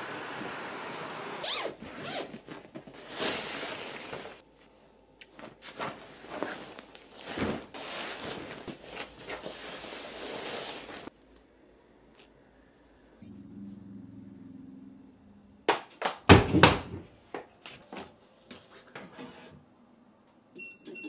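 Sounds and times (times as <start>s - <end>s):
fabric rustling and swishing: 0.1s - 11.2s.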